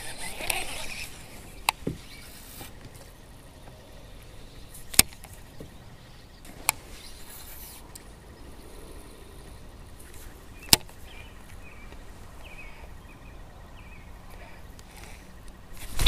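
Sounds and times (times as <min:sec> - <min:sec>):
fishing reel clicks: 0:00.0 - 0:01.8
faint outdoor noise: 0:00.0 - 0:16.0.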